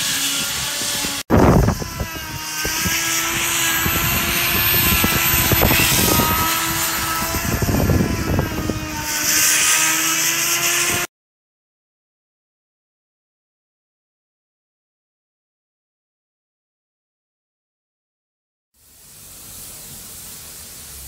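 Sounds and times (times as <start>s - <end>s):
motor droning hum: 0.0s - 11.1s.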